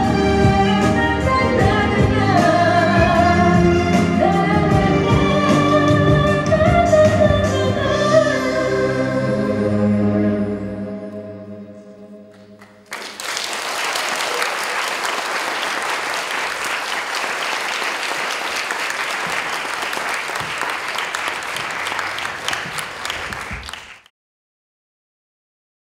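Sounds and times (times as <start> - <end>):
audience applause: 12.6 - 24.1.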